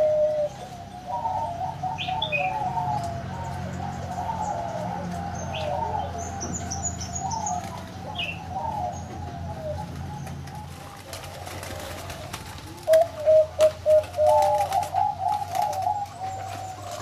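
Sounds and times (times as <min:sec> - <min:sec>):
doves cooing: 0:00.0 - 0:17.0.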